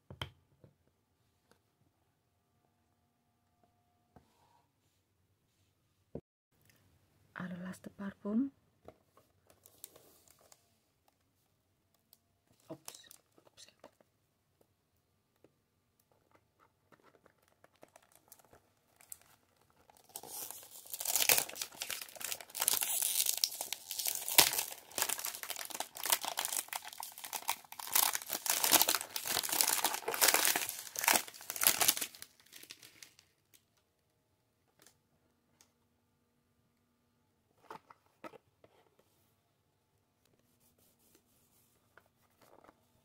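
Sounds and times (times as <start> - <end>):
plastic wrap crinkling and tearing: 17.1 - 33.6.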